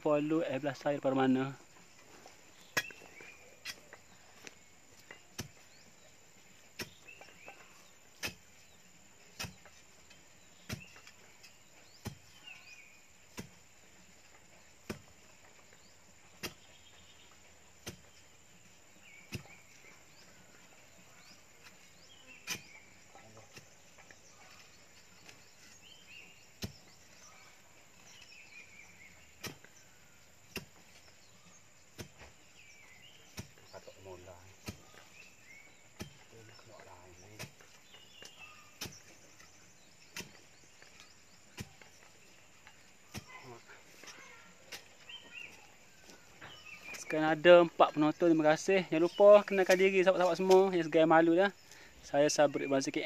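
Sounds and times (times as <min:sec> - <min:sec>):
birds chirping faintly: 0:00.0 - 0:53.0
metal bar striking soil: 0:01.1 - 0:47.1.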